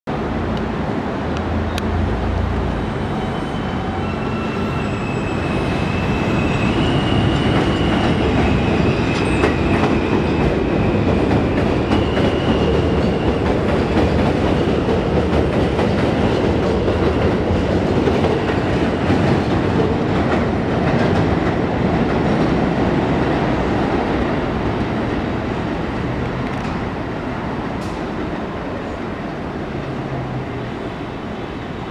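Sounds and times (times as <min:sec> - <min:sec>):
subway train passing: 0:00.1 - 0:31.9
high wheel squeal: 0:02.7 - 0:13.4.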